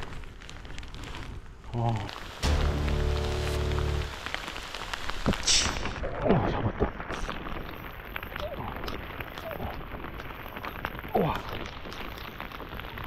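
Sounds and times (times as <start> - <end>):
heavy rain falling: 0.0 - 13.0
short high hiss: 2.3 - 6.0
low musical chord: 2.4 - 4.3.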